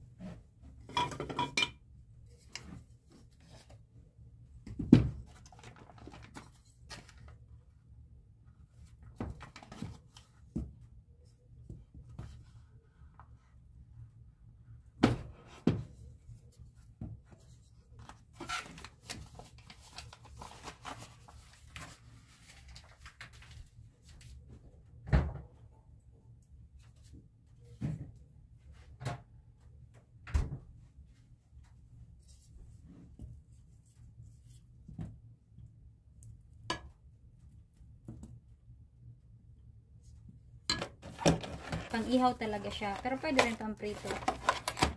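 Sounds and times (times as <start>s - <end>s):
foil wrapper crinkling: 18.6s - 23.6s, 41.4s - 44.9s.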